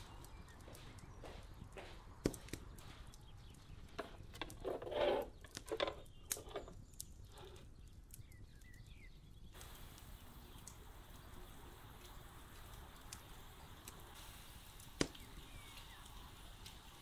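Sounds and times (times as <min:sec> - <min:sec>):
embers clicking: 0:00.0 - 0:17.0
faint steady hiss: 0:07.0 - 0:17.0.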